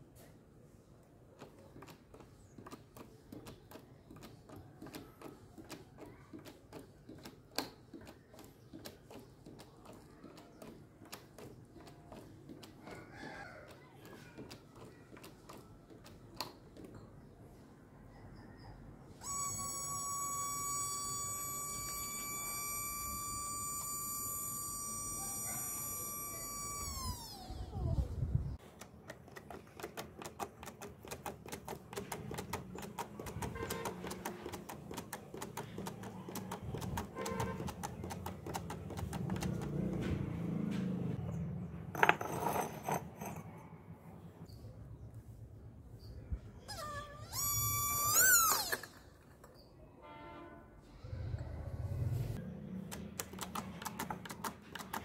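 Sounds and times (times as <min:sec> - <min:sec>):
hydraulic valve whistling: 0:19.2 - 0:27.8, 0:46.7 - 0:48.9
jack pump clicking: 0:28.7 - 0:40.0.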